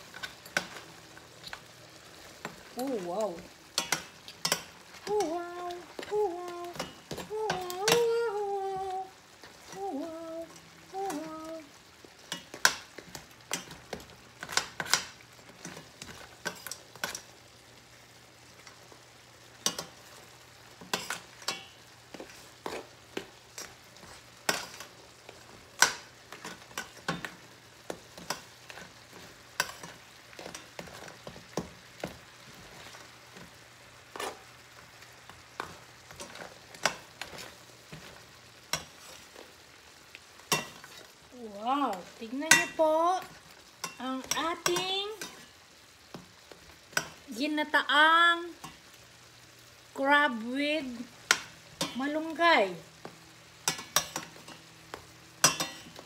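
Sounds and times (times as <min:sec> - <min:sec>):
faint simmering sizzle: 0:00.0 - 0:56.0
metal spoon scraping a pan: 0:03.8 - 0:06.0, 0:12.3 - 0:17.3, 0:20.8 - 0:33.0, 0:34.1 - 0:34.5, 0:40.4 - 0:41.2, 0:42.5 - 0:46.2, 0:53.6 - 0:54.6, 0:55.4 - 0:56.0.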